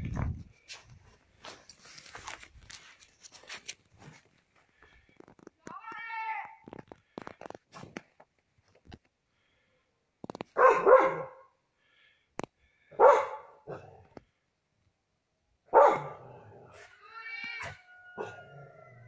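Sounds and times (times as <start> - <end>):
dog barking: 10.6 - 11.6, 12.9 - 14.0, 15.7 - 16.9, 18.2 - 18.6
dog drawn-out high call: 16.8 - 18.9.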